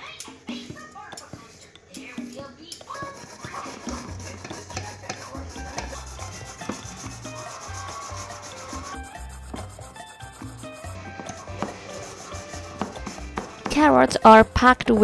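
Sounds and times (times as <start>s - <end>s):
carrot rasping on a grater: 2.9s - 14.8s.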